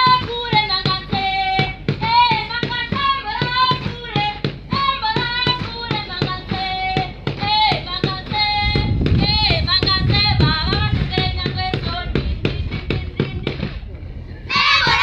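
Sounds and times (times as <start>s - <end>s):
rhythmic hand clapping: 0.0s - 13.8s
low rumble: 8.3s - 15.0s
children singing in unison: 14.5s - 15.0s.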